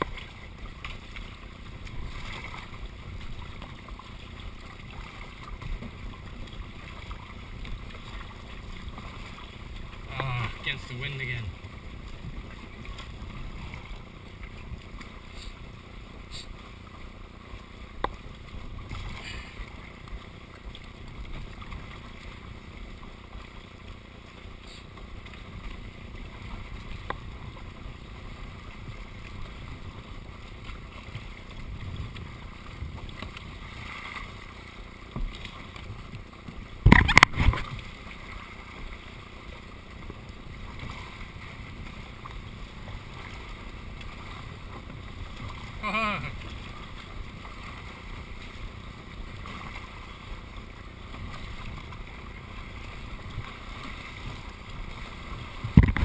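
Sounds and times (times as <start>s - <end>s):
water lapping against kayak: 0.0s - 56.0s
paddle knocks: 35.1s - 38.3s, 54.3s - 56.0s
hard knocks against hull: 55.7s - 56.0s.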